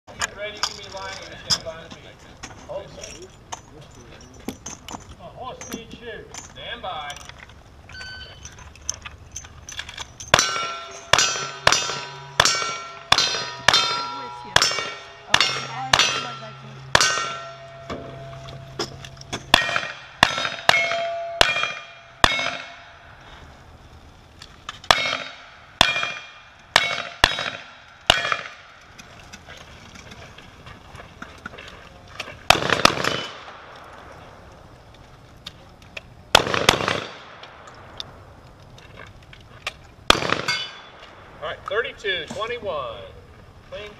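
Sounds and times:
shotgun blasts: 10.3 - 17.6, 19.5 - 22.9, 24.9 - 28.8, 32.5 - 33.8, 36.3 - 37.7, 40.1 - 41.3
gunshots in bursts: 10.3 - 18.0, 19.4 - 23.2, 24.9 - 28.8, 32.4 - 34.0, 36.3 - 37.8, 40.1 - 41.3
ringing of hit steel target: 10.3 - 23.1, 24.9 - 28.6, 40.4 - 41.0.

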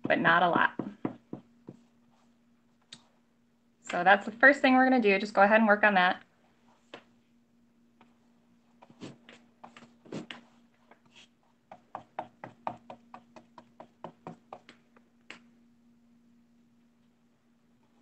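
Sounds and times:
paintbrush tapping on canvas: 11.7 - 14.8.

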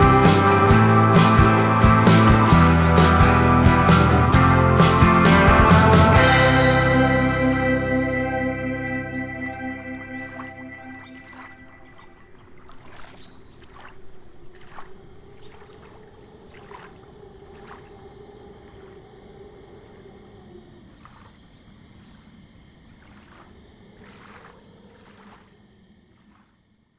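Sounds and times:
low droning tone: 0.0 - 18.1
water splashing softly: 10.1 - 26.8.

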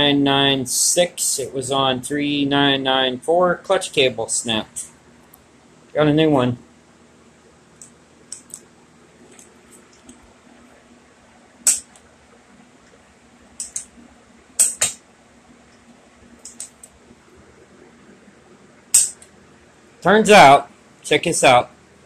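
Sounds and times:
faint steady hum: 0.0 - 22.0
sharp clicks and knocks: 13.6 - 13.9, 14.6 - 15.0.

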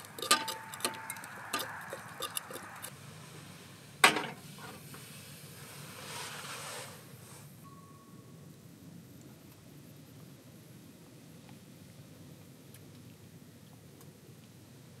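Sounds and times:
utensil scraping inside pot: 0.0 - 2.9
soft hiss: 2.9 - 14.9.

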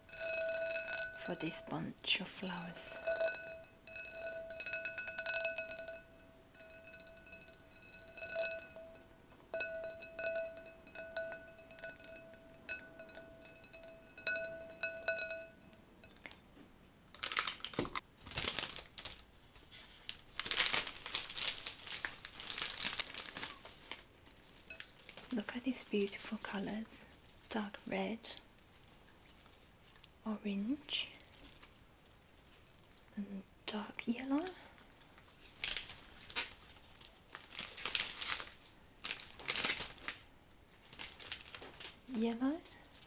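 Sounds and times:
glass ringing: 0.0 - 1.7, 2.4 - 16.2
fingertips tapping glass vase: 0.0 - 16.4
cellophane crinkling: 17.1 - 27.5, 34.4 - 43.0.

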